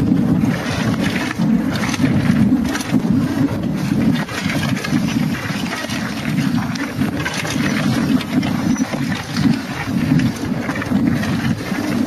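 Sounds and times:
bike rattling over rough ground: 0.0 - 12.0
wind buffeting microphone: 0.0 - 12.0.

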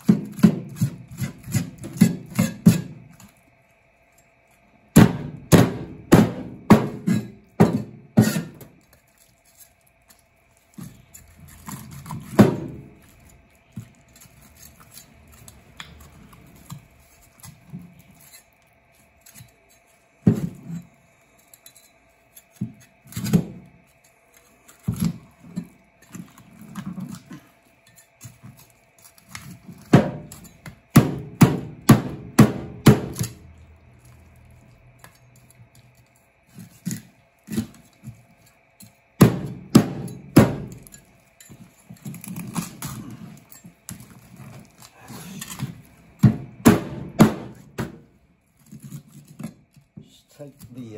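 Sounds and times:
cleaver chopping fish bones: 0.0 - 2.9, 4.9 - 8.8, 11.6 - 13.0, 29.1 - 33.5, 38.8 - 41.0, 44.7 - 48.0.

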